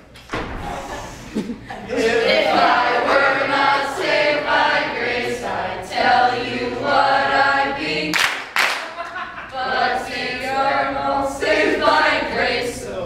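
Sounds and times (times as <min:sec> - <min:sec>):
group singing a cappella: 0:01.8 - 0:08.6, 0:09.4 - 0:13.0.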